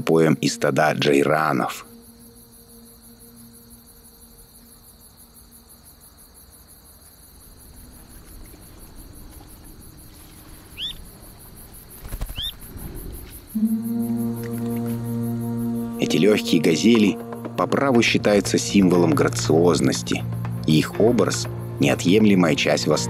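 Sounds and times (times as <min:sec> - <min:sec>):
music: 0:00.0 - 0:06.1, 0:13.5 - 0:23.0
insects chirring: 0:00.0 - 0:23.0
short bird chirps: 0:12.2 - 0:13.2.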